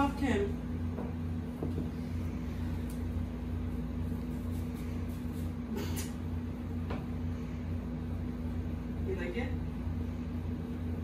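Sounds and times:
steady low hum: 0:00.0 - 0:11.0
broom bristles brushing hardwood floor: 0:04.0 - 0:05.6.

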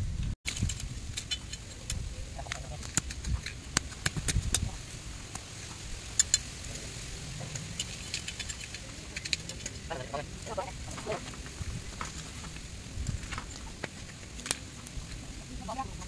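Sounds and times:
faint voices: 0:08.5 - 0:16.0.

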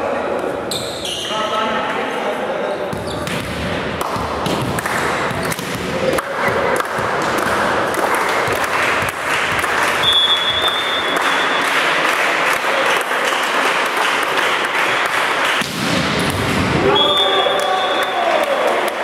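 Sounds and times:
crowd noise: 0:00.0 - 0:19.0
people clapping: 0:04.0 - 0:15.8, 0:17.2 - 0:19.0
referee whistle: 0:10.0 - 0:11.6, 0:16.8 - 0:18.2.

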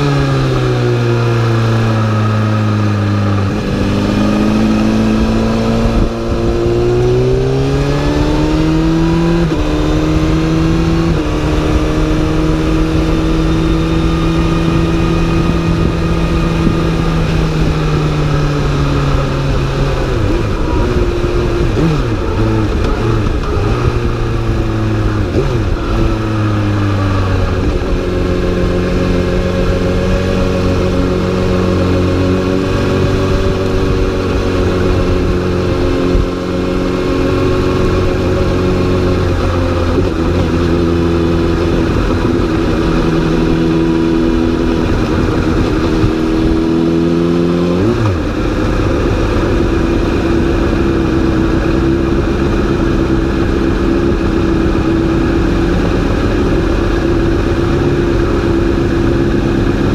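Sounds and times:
motorcycle engine running hard: 0:00.0 - 0:59.9.

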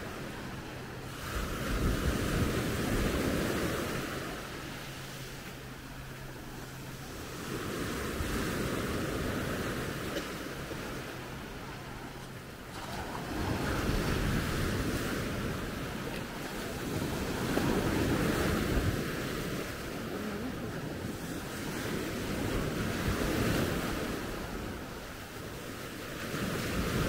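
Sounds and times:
wind on microphone: 0:00.0 - 0:04.7, 0:12.7 - 0:27.0
sea waves breaking on sand: 0:00.0 - 0:27.0.

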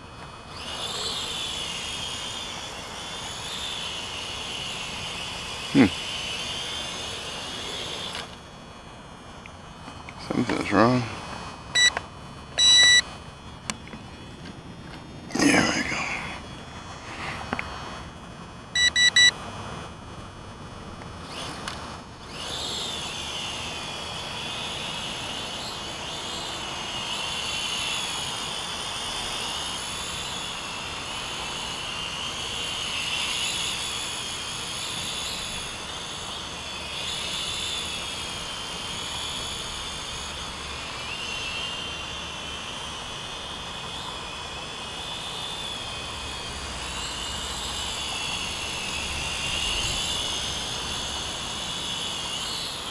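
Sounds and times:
toy quadcopter motors whining: 0:00.0 - 0:52.9
short electronic beeps: 0:11.8 - 0:12.0, 0:12.6 - 0:13.1, 0:18.8 - 0:19.4.

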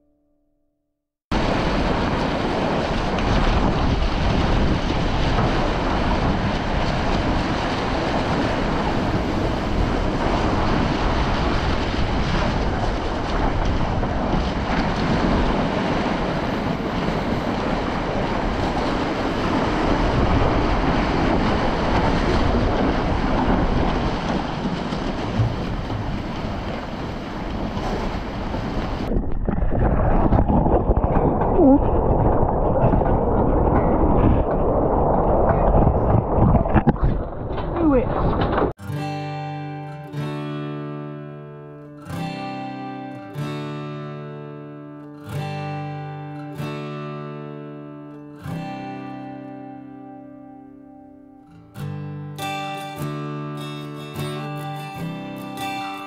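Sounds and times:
wind buffeting microphone: 0:01.3 - 0:38.8
water splashing along boat hull: 0:01.3 - 0:41.5, 0:52.4 - 0:56.0.

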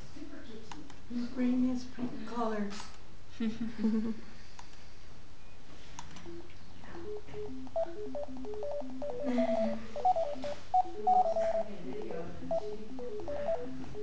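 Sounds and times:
steady low hum: 0:06.2 - 0:14.0
rapid electronic beeps: 0:07.0 - 0:14.0.

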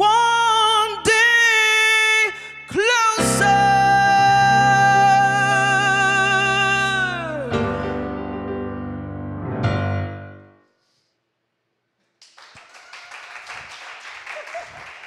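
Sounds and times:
piano chord: 0:03.2 - 0:10.6
audience applause: 0:12.2 - 0:15.0.

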